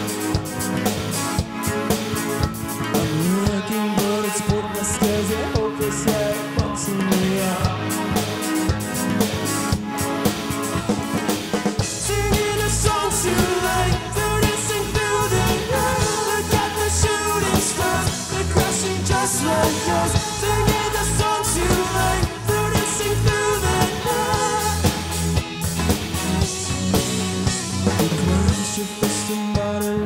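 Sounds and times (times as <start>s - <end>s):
drum kit: 0.0s - 30.0s
electric bass: 0.0s - 30.0s
electric guitars: 0.0s - 30.0s
man singing: 3.0s - 8.1s, 11.8s - 25.1s, 28.0s - 30.0s.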